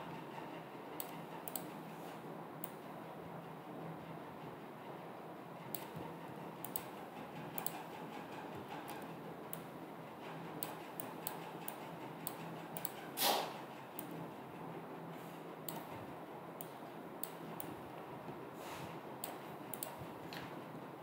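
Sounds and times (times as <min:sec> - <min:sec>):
computer mouse clicks: 0:01.0 - 0:01.8, 0:02.6 - 0:02.8, 0:05.7 - 0:06.0, 0:06.6 - 0:06.9, 0:07.6 - 0:07.9, 0:08.8 - 0:09.7, 0:10.6 - 0:13.0, 0:14.0 - 0:14.2, 0:15.6 - 0:15.9, 0:16.6 - 0:17.7, 0:19.2 - 0:20.4
brief puff of noise: 0:13.2 - 0:13.6.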